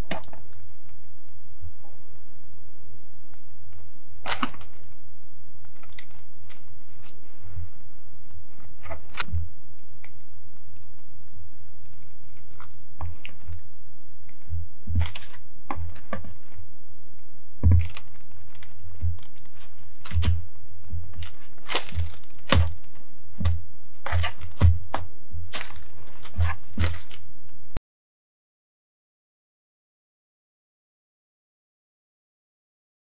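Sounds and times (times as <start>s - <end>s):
steady low hum: 0.0s - 27.8s
baking paper rustling and crinkling: 5.7s - 7.6s, 14.3s - 16.7s, 17.6s - 27.3s.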